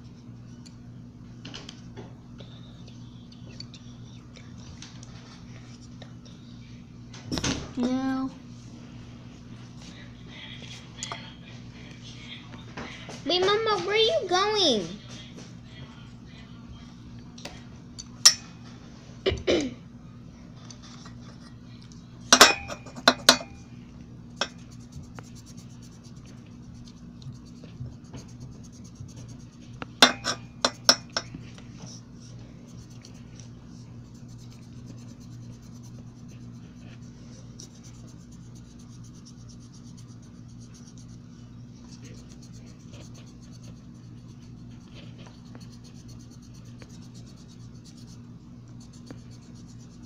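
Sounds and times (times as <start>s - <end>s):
pencil scratching on paper: 24.5s - 29.8s, 33.8s - 48.2s, 48.8s - 50.0s.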